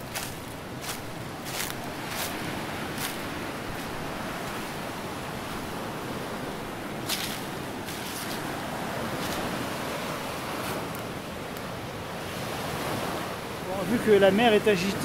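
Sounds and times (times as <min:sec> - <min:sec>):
footsteps on coarse sand: 0:00.0 - 0:11.3
surf washing onto beach: 0:00.0 - 0:15.0.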